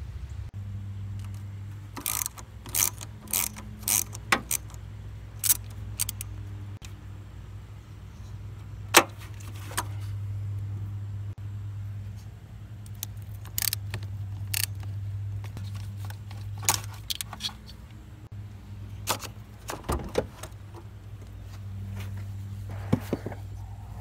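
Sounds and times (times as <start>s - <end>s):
steady low hum: 0.0s - 24.0s
metallic clicks and clunks: 1.2s - 4.8s.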